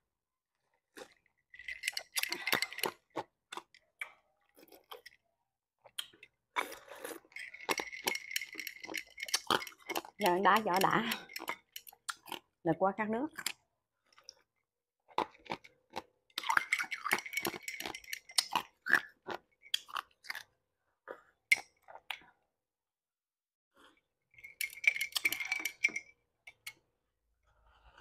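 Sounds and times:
ice cubes crunched by teeth: 0:01.0 - 0:05.1, 0:06.6 - 0:10.2, 0:15.1 - 0:20.5.

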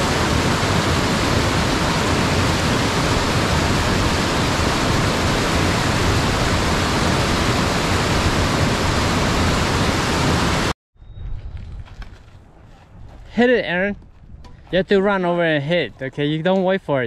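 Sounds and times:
mountain stream rushing: 0:00.0 - 0:10.8.

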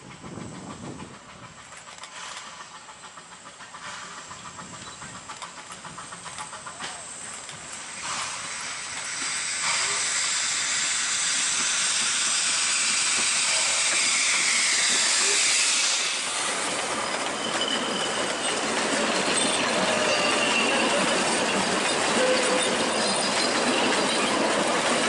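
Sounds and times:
rail clatter: 0:00.0 - 0:09.9, 0:11.4 - 0:25.0
steam locomotive hissing: 0:00.0 - 0:25.0
wheel squeals: 0:11.6 - 0:25.0.

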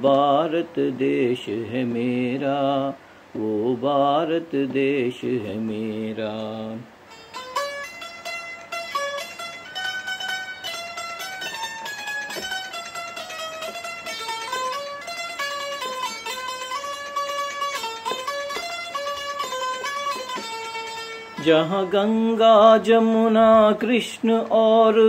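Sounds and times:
keyed zither melody: 0:07.1 - 0:22.4.

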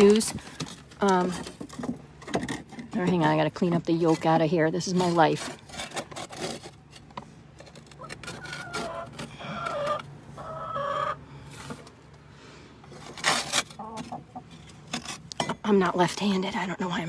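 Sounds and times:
metal scraper on wood: 0:04.1 - 0:07.1
hens clucking: 0:07.9 - 0:11.5, 0:13.7 - 0:14.6.

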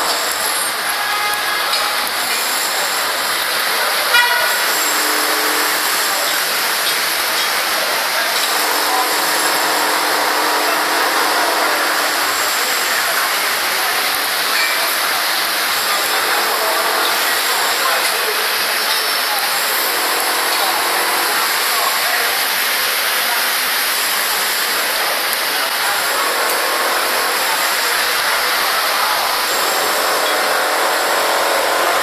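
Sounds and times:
cars driving through floodwater: 0:00.0 - 0:32.0
water rushing on flooded street: 0:00.0 - 0:32.0.

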